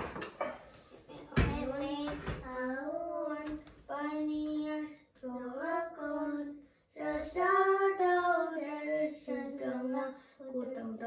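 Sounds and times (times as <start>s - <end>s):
children singing: 5.5s - 11.0s.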